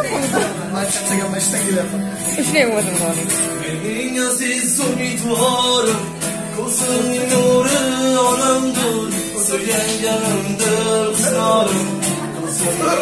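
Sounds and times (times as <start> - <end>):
man singing: 0.0 - 2.4, 3.1 - 13.0
strummed acoustic guitar: 0.0 - 13.0.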